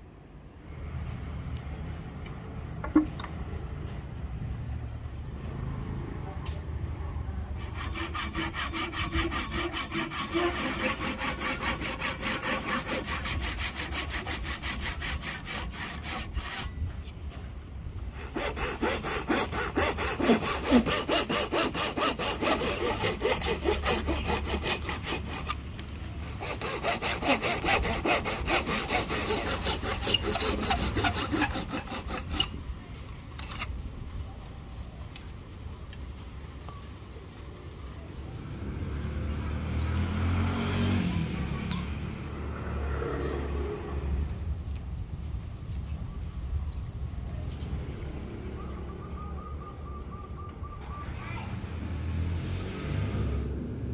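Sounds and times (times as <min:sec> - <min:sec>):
hand saw cutting wood: 0:07.5 - 0:17.2, 0:18.1 - 0:32.6.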